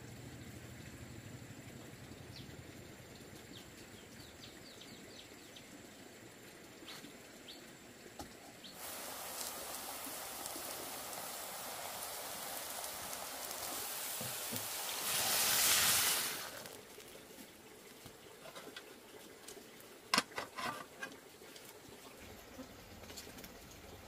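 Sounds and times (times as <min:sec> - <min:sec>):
steady hiss: 0:00.0 - 0:24.0
water splashing into wok: 0:08.8 - 0:17.2.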